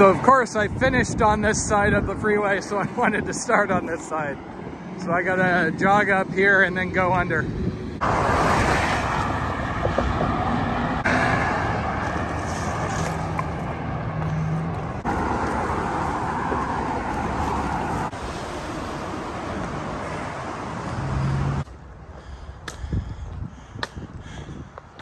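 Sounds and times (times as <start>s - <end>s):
freeway traffic rushing: 0.0s - 25.0s
low engine hum: 4.1s - 22.5s.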